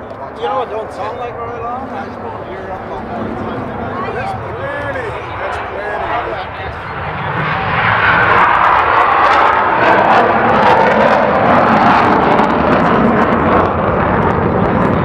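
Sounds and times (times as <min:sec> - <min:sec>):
aircraft engine running: 0:00.0 - 0:15.0.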